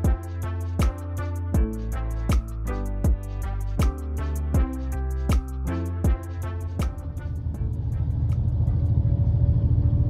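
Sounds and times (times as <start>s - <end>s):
train rumble from inside car: 7.2s - 10.0s.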